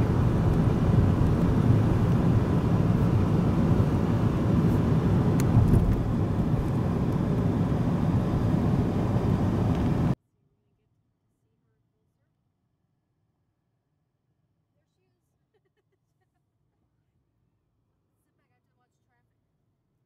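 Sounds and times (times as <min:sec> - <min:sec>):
road and engine noise inside car: 0:00.0 - 0:10.2.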